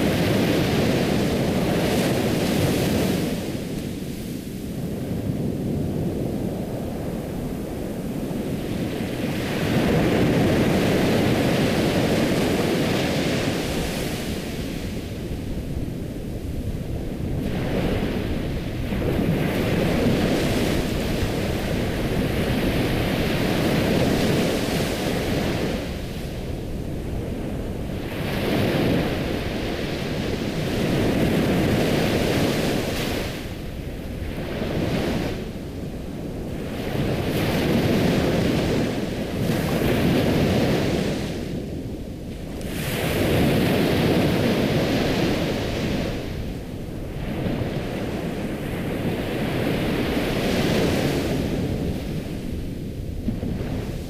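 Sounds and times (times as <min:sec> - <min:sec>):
ocean waves breaking: 0:00.0 - 0:54.0.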